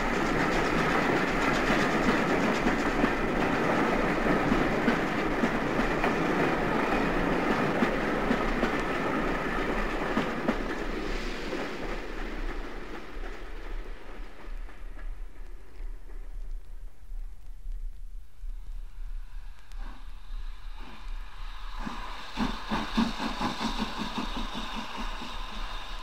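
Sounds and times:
train wheels clattering over rail joints: 0.0s - 16.2s.

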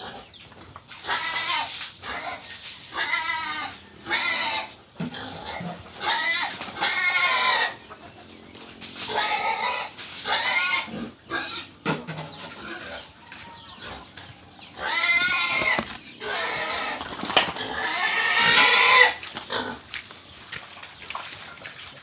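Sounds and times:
pigs squealing: 0.9s - 20.0s.

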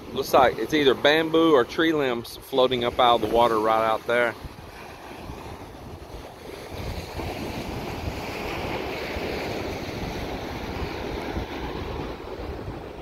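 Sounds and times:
wind buffeting microphone: 0.0s - 13.0s
surf breaking on gravel shore: 0.1s - 13.0s.

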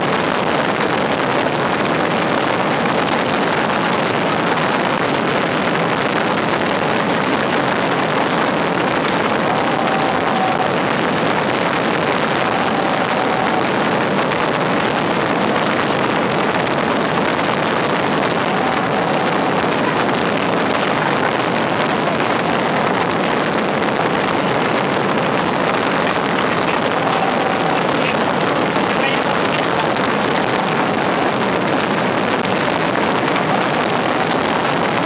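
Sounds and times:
rockets bursting: 0.0s - 35.0s.

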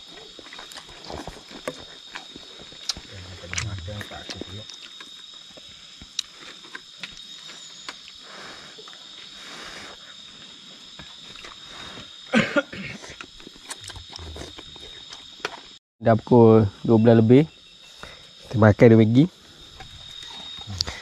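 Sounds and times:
slurping and chewing: 0.0s - 10.0s, 11.0s - 12.2s, 13.0s - 15.6s
insects chirping: 0.0s - 21.0s.

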